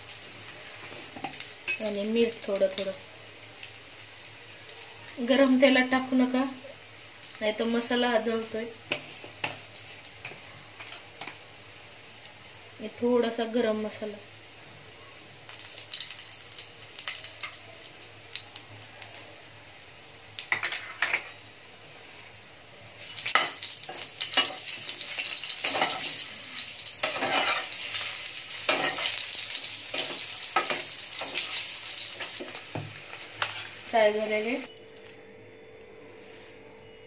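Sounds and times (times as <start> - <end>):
eggs sizzling in hot oil: 0.0 - 34.7
metal spatula scraping pan: 27.0 - 29.3.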